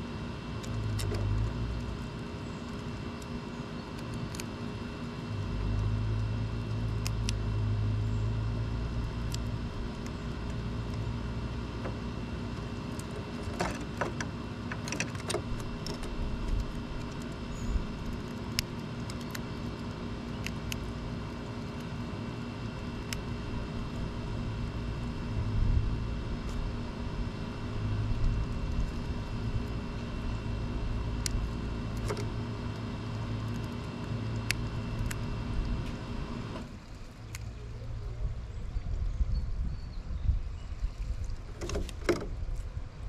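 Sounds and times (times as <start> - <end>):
motor hum: 0.0 - 43.0
sharp clicks: 12.9 - 21.9
wind on microphone: 38.0 - 41.6.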